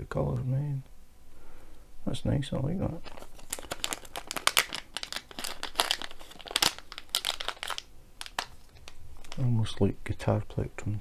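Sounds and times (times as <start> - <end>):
plastic pouch crinkling: 3.0 - 9.5.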